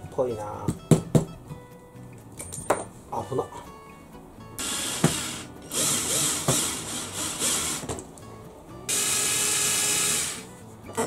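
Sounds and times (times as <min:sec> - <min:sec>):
cordless drill running: 0:04.6 - 0:07.9, 0:08.9 - 0:10.5.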